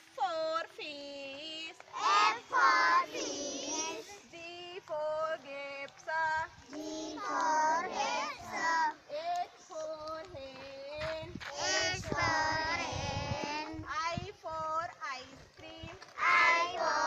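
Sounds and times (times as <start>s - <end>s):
children chanting in unison: 1.9s - 4.2s, 6.7s - 9.3s, 11.5s - 13.7s, 16.2s - 17.0s.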